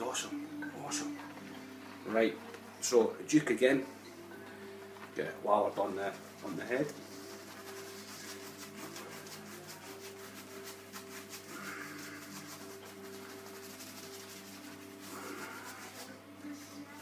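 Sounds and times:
shaving brush swishing lather: 6.0s - 17.0s.

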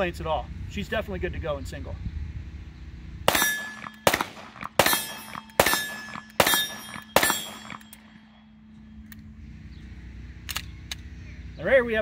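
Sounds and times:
pistol shots: 3.3s - 8.2s
brief ringing after shots: 4.8s - 8.5s.

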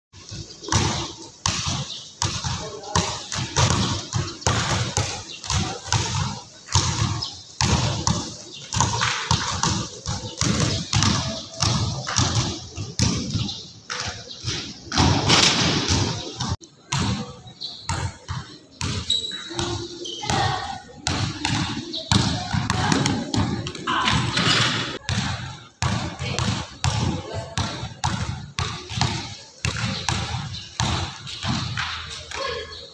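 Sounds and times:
basketball bouncing in a gym: 0.2s - 32.9s.

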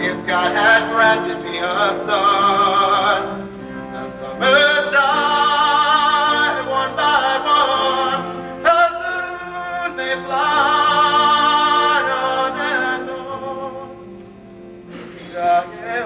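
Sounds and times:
sustained accompaniment: 0.0s - 16.0s
boy singing with vibrato: 4.0s - 13.9s.

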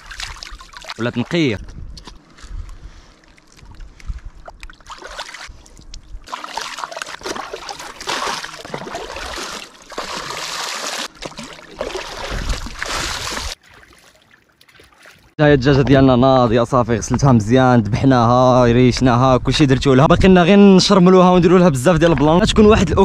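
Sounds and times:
water splashing and pouring: 0.0s - 1.4s, 4.5s - 5.5s, 6.2s - 15.3s
plastic bowl scooping water: 6.3s - 15.3s.

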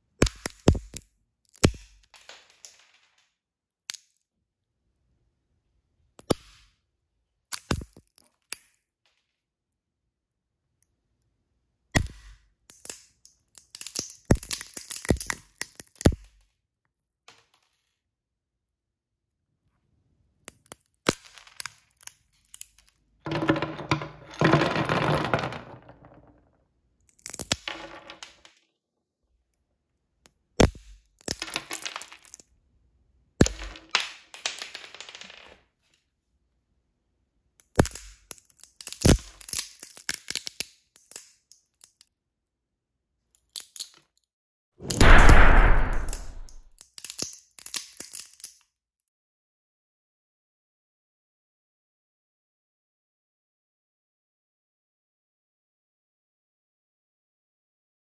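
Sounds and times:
nutcracker cracking walnut shells: 12.7s - 16.3s, 37.6s - 42.1s, 45.7s - 48.6s.

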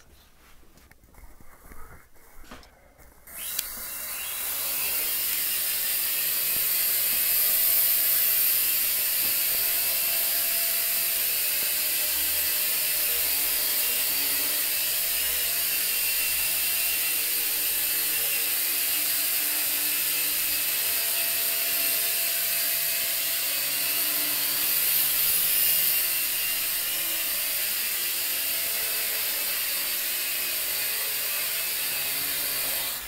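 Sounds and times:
quadcopter propellers whirring: 3.3s - 15.0s.

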